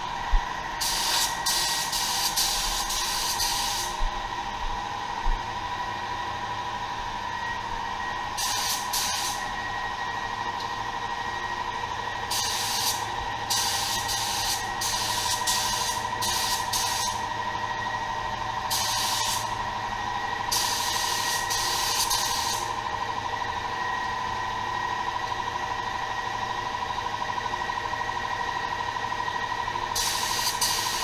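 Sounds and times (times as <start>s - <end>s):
steady whine: 0.0s - 31.0s
spray gun hissing: 0.8s - 4.0s, 8.4s - 9.4s, 12.3s - 17.2s, 18.7s - 19.5s, 20.5s - 22.7s, 30.0s - 31.0s.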